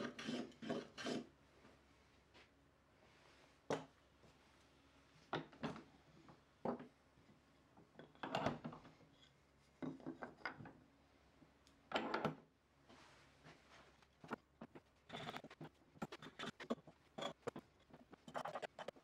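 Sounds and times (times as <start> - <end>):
hand tool scraping hardwood: 0.0 - 1.3, 14.3 - 19.0.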